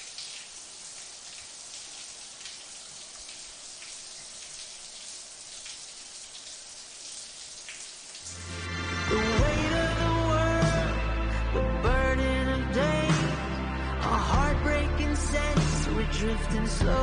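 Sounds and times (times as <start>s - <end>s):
shower water pouring: 0.0s - 9.5s.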